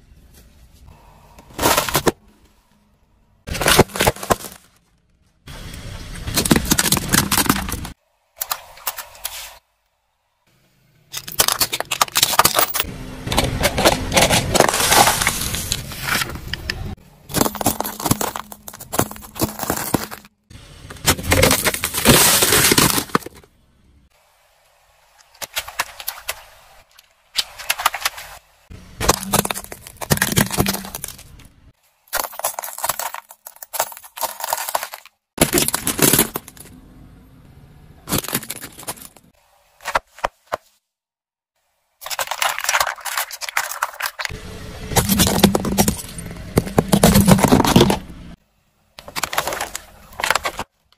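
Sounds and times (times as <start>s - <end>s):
plastic crushed under car tyre: 3.5s - 4.9s, 6.3s - 8.0s, 13.3s - 16.6s, 17.3s - 20.3s, 21.0s - 23.5s, 29.0s - 31.5s, 32.1s - 36.7s, 42.1s - 48.4s, 49.0s - 50.7s.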